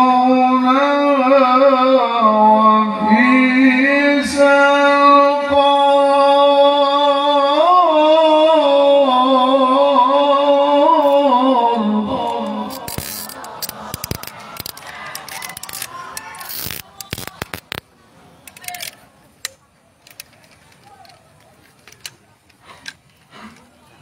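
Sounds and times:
man chanting into a microphone: 0.0 - 13.1.

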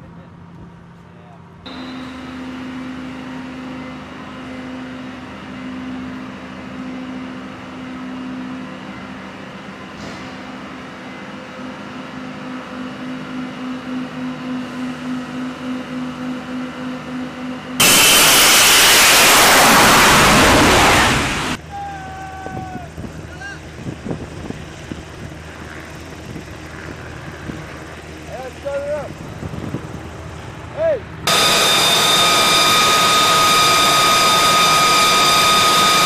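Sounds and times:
pulsing machinery hum: 1.7 - 21.6, 22.9 - 36.0
loud rushing noise: 17.8 - 21.6.

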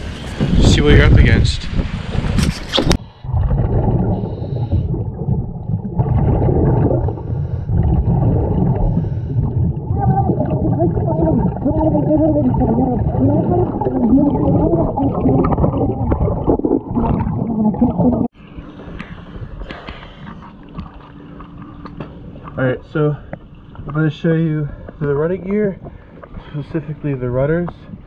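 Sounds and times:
underwater bubbles rumbling: 0.4 - 18.4
diver regulator breathing: 6.9 - 9.8
wavering pitched sound: 9.9 - 18.3.

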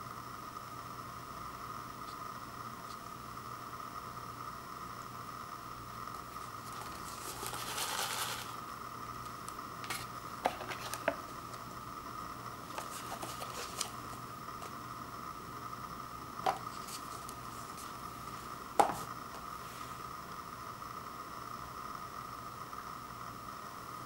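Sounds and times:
faint steady hum: 0.0 - 24.0
foil lid crinkling: 6.4 - 8.6, 9.4 - 11.6, 12.6 - 14.7
paper and plastic crackles: 6.5 - 8.6, 9.4 - 11.2, 12.7 - 14.7.

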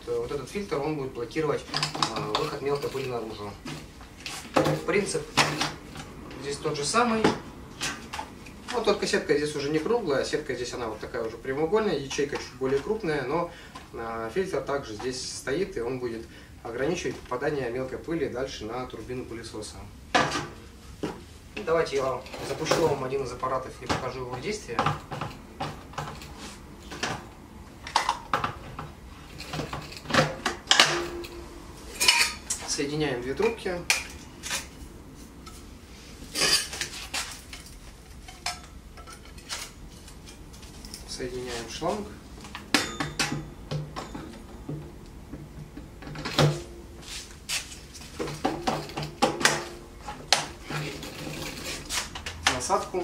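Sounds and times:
vacuum accessories clicking and knocking: 42.5 - 46.7.

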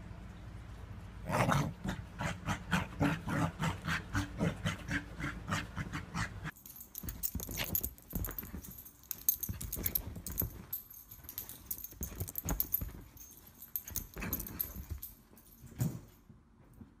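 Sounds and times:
fabric rustling and scuffling: 6.6 - 15.8.

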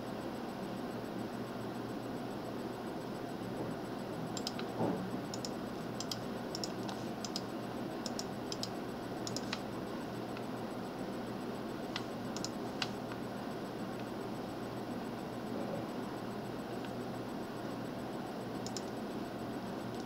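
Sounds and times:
computer mouse clicks: 4.4 - 4.7, 5.3 - 9.6, 11.9 - 13.2, 18.6 - 19.0.

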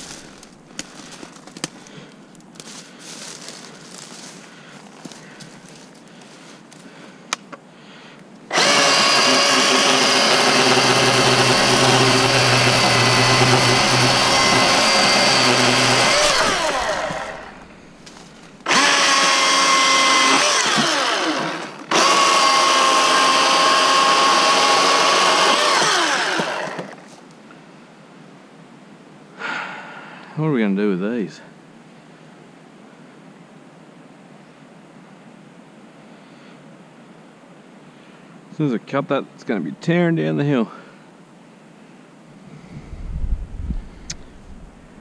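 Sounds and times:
cordless chainsaw whining: 8.5 - 27.0.

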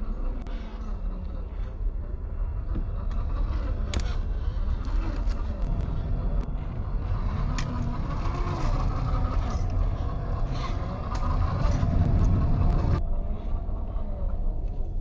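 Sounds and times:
deep rumble: 0.0 - 15.0
rc car electric motor: 7.0 - 13.0.

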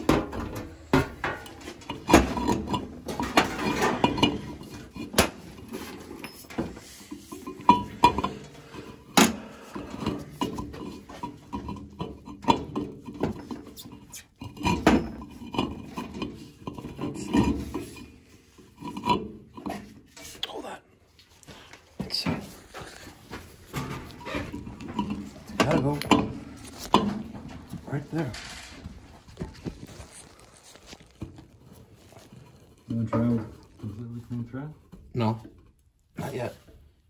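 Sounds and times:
metal scraping: 0.0 - 20.4, 22.2 - 34.7
metal tools clinking: 0.3 - 8.8.

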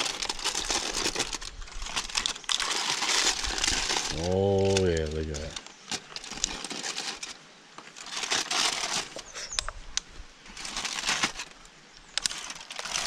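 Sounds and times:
aluminium foil crinkling: 0.0 - 13.0.

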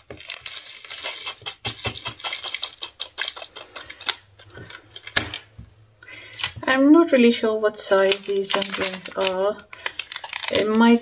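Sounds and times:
plastic box rattling: 8.0 - 11.0.

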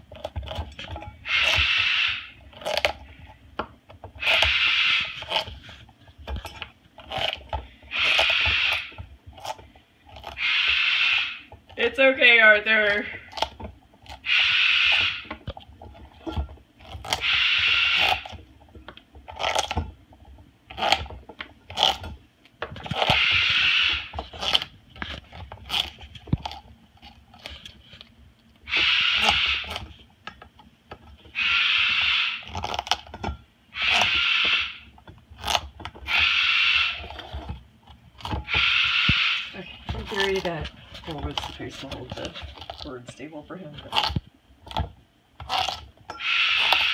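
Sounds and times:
bird beak scraping squash: 0.0 - 3.4, 4.0 - 18.5, 19.2 - 22.2, 22.8 - 30.1, 31.1 - 46.9.

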